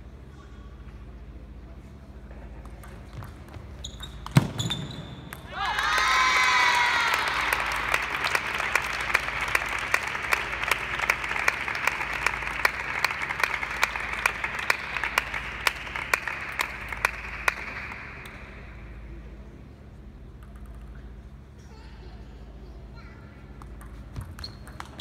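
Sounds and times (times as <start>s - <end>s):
crowd applause: 5.6s - 18.2s
sharp individual claps: 7.0s - 18.6s.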